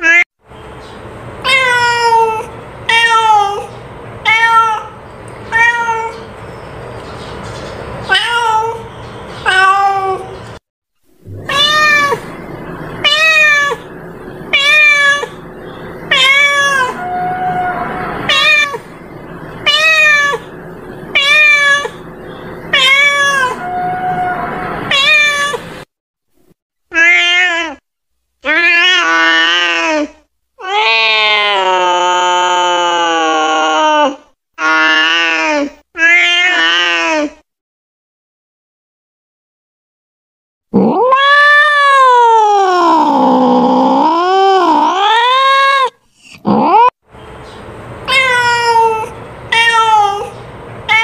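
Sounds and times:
cat meowing: 1.4s - 6.3s, 8.1s - 10.4s, 11.3s - 22.0s, 22.6s - 25.8s, 40.8s - 46.9s, 48.1s - 51.0s.

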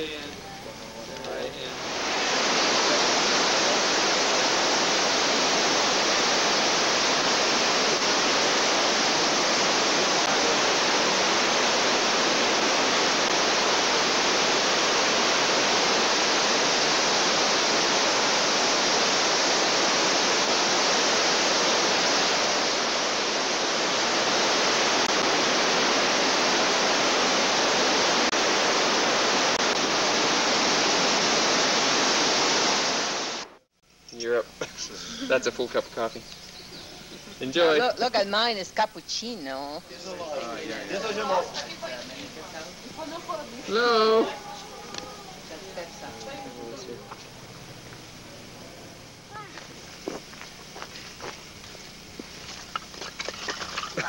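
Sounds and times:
river rushing over rocks: 1.8s - 33.5s.

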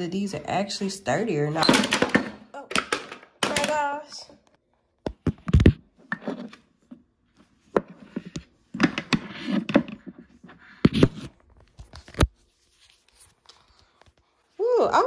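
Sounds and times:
hard objects knocking and clacking: 1.6s - 4.1s.

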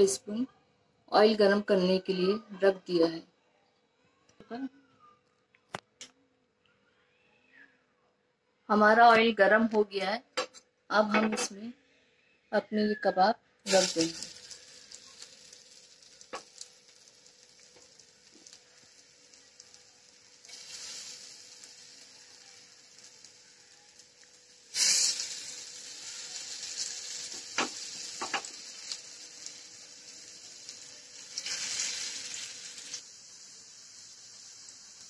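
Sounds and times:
kababs sizzling in hot oil: 13.6s - 35.0s.

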